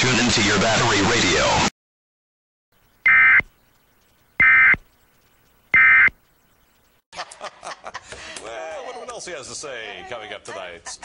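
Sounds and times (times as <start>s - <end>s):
buzzy digital data bursts: 2.8s - 7.0s.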